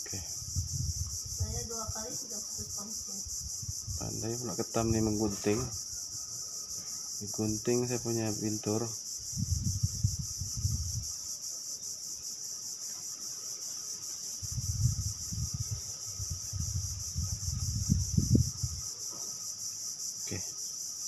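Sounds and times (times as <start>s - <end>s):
insect chorus: 0.0s - 21.0s
low rumble near microphone: 9.3s - 11.1s.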